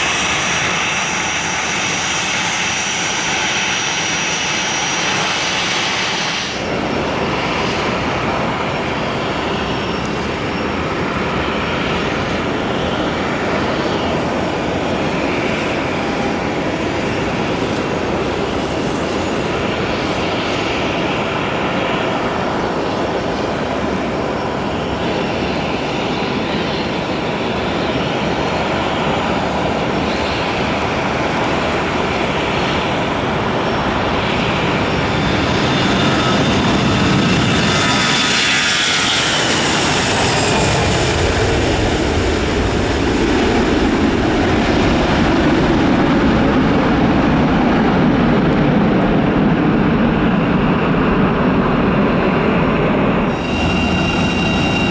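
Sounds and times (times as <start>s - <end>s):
jet engines on takeoff roll: 0.0s - 54.9s.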